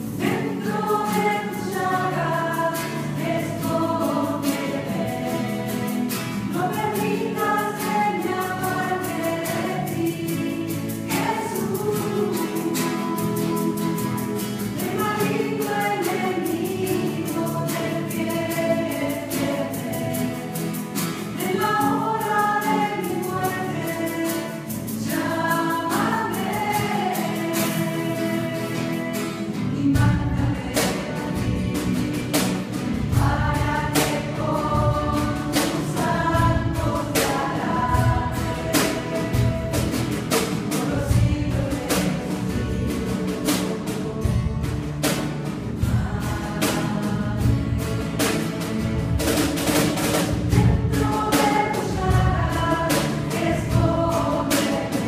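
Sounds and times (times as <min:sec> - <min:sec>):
cajon drum: 0:00.0 - 0:55.0
group singing a hymn: 0:00.0 - 0:55.0
strummed acoustic guitars: 0:00.0 - 0:55.0.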